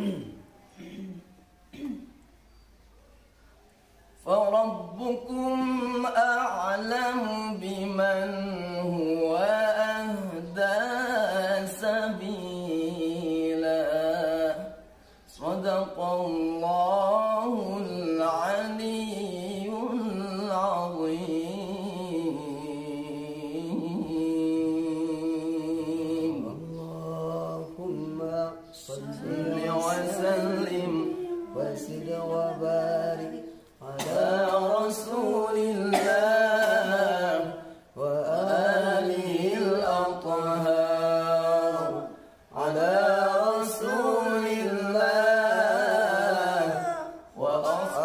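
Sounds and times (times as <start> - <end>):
person chanting melodic phrases: 27.6 - 34.0.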